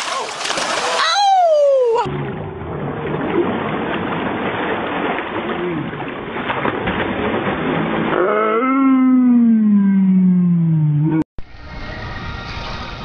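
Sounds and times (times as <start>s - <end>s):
pool water splashing: 0.0s - 10.3s.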